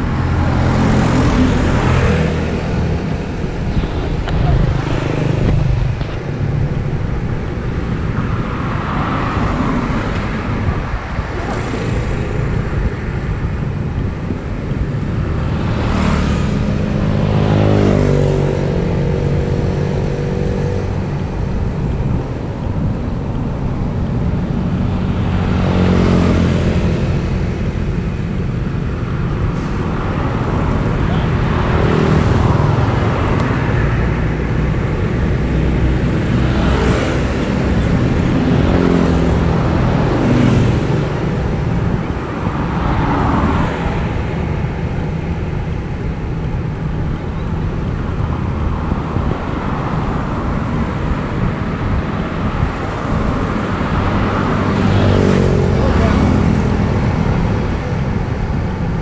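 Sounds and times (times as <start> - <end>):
low engine rumble: 0.0 - 15.9
vehicles passing: 0.0 - 59.0.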